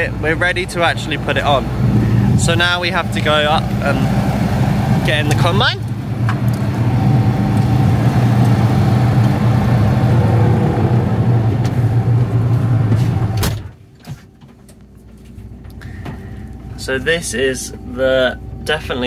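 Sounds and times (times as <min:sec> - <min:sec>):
harvester engine idling: 0:00.0 - 0:19.0
cab door clunk: 0:11.5 - 0:14.8.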